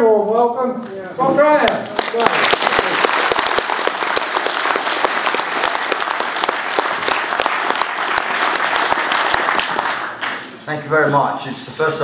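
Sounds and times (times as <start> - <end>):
audience applauding: 1.8 - 10.5.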